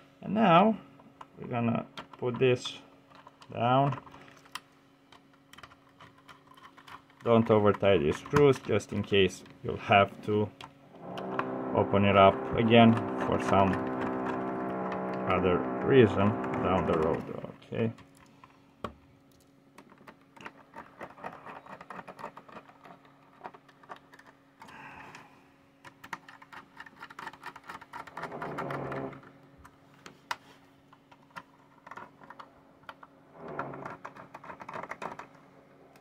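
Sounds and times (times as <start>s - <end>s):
steady low hum: 0.0s - 21.2s.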